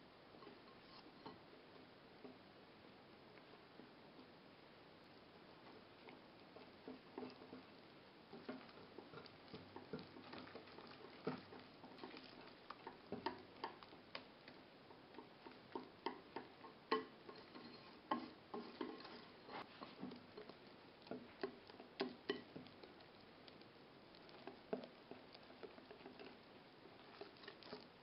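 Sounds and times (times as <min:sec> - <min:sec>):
whisk scraping glass bowl: 0:17.3 - 0:20.6.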